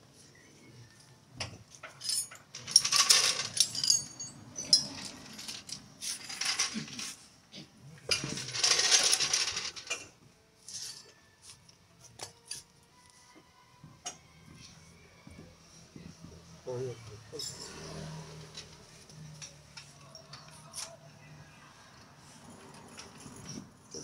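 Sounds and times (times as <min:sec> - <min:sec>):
metal tools clinking and rattling: 0:01.7 - 0:07.2, 0:08.1 - 0:11.2, 0:17.3 - 0:20.9, 0:22.6 - 0:24.0.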